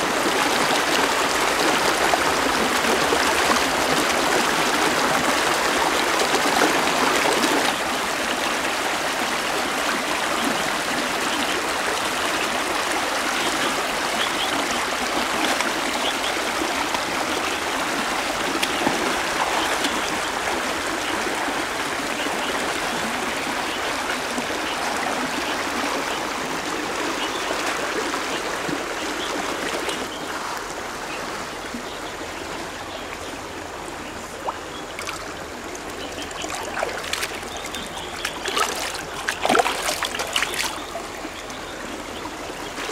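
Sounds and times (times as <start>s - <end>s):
river water rushing over rocks: 0.0s - 31.0s, 33.4s - 42.9s
small splashes from wading: 34.0s - 42.9s.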